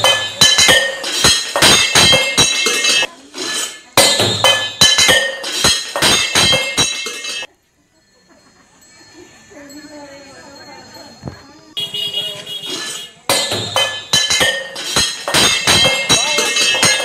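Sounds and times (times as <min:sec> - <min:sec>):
steel pots rattling and clinking: 0:00.0 - 0:07.5, 0:12.6 - 0:17.0.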